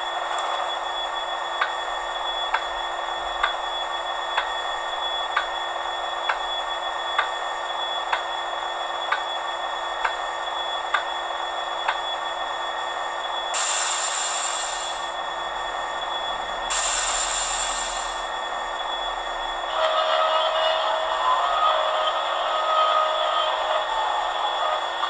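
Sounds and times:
locomotive engine hum: 0.1 - 25.0
valve ticking sharply: 13.6 - 15.1, 16.7 - 18.3.

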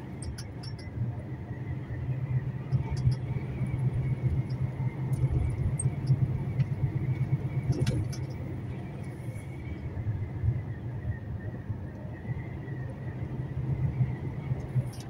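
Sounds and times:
truck engine rumble: 0.0 - 15.0
light clicks and rattles: 2.7 - 8.5.

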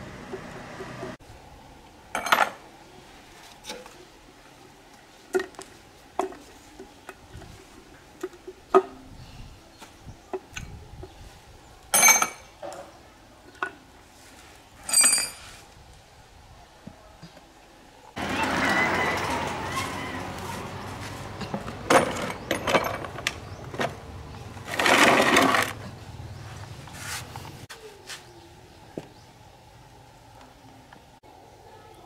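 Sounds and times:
ringing metal clangs: 11.9 - 12.6.

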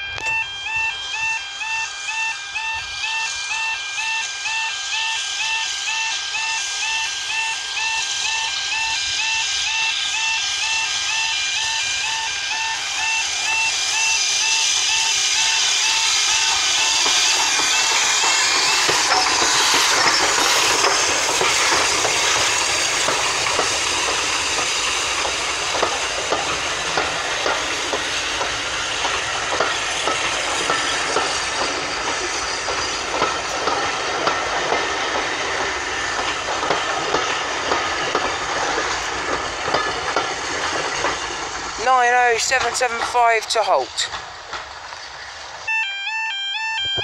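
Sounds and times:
two-tone warbling alarm: 0.0 - 21.9, 45.6 - 47.0
steam locomotive passing: 0.0 - 47.0
steam hiss: 0.8 - 45.9
wheels clicking over rail joints: 12.9 - 45.6.

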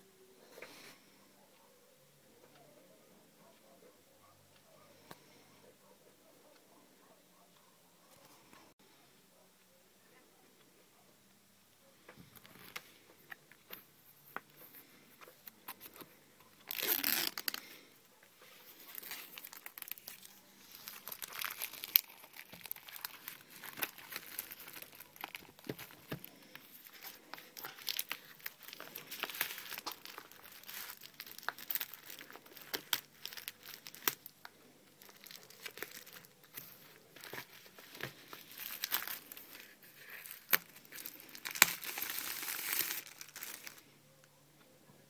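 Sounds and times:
plastic packaging crinkling and tearing: 13.7 - 17.8, 18.4 - 44.0.

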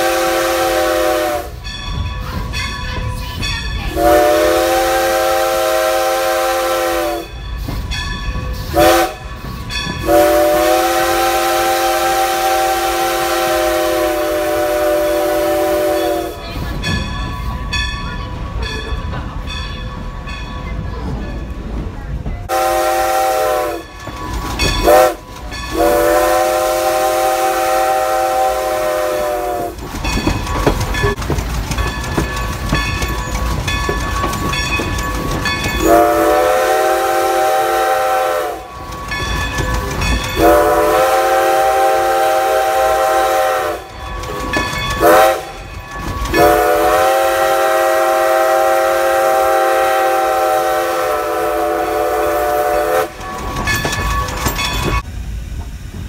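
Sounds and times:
steam whistle blasts: 0.0 - 1.6, 3.9 - 7.4, 8.7 - 9.2, 10.0 - 16.4, 22.5 - 23.9, 24.8 - 29.8, 35.8 - 38.8, 40.4 - 44.0, 45.0 - 45.6, 46.3 - 53.2
locomotive wheels on rails: 0.0 - 56.0.

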